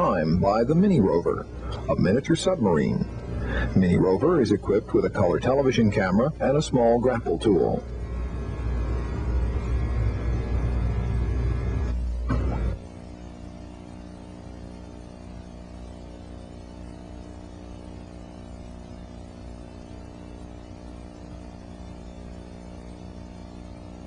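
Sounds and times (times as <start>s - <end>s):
steady electrical hum: 0.0s - 24.0s
low rumble: 6.3s - 13.2s.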